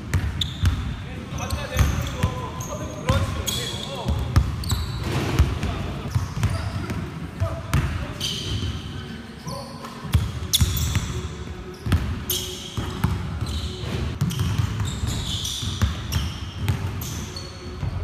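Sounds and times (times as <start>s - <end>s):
basketballs dribbled on gym floor: 0.0s - 3.4s, 4.0s - 8.8s, 12.8s - 18.0s
sneakers squeaking on court: 0.1s - 18.0s.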